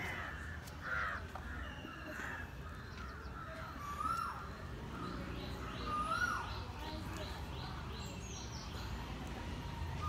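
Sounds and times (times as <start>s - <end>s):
crows cawing: 0.0s - 4.4s.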